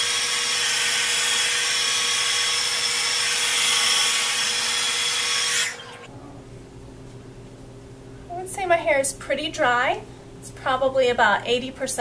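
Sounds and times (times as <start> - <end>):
hair dryer blowing: 0.0 - 6.1
hair dryer motor winding down: 0.0 - 6.1.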